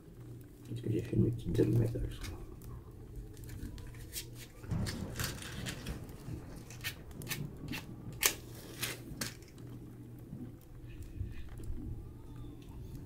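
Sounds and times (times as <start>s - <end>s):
match struck and flaring: 3.4s - 9.8s.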